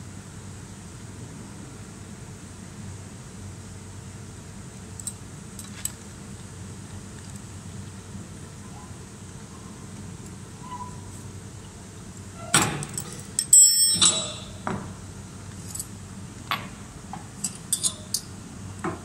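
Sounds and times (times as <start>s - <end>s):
loud ringing metal clank: 12.4s - 14.7s
steel parts knocking and clinking: 12.5s - 14.8s, 17.4s - 18.3s.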